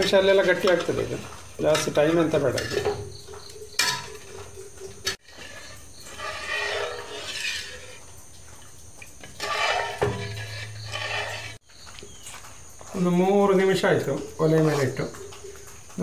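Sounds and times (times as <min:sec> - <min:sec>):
metal ladle scraping wok: 0:00.3 - 0:03.1, 0:03.7 - 0:08.1, 0:09.2 - 0:11.6.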